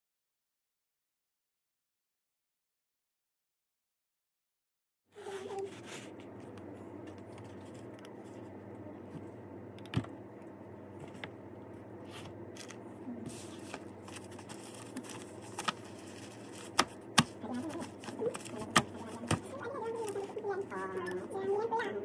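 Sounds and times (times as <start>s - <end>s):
room hum: 5.1s - 22.0s
paper sheets handled: 12.0s - 20.6s.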